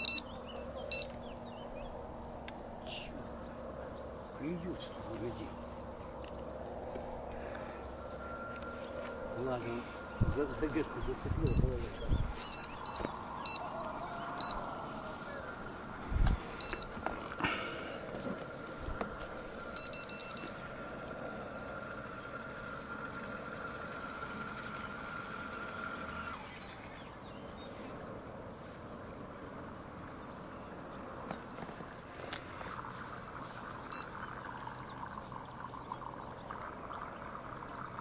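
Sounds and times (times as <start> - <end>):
short electronic beeps: 0.0 - 0.3, 0.9 - 1.1, 11.4 - 13.6, 14.4 - 14.6, 16.6 - 16.9, 19.8 - 20.6, 33.9 - 34.1
steady high whine: 0.0 - 38.0.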